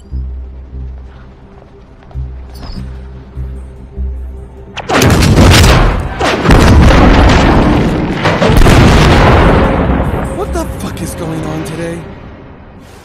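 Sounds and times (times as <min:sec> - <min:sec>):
low pulsing music: 0:00.0 - 0:13.0
loud explosion blasts: 0:04.9 - 0:10.3.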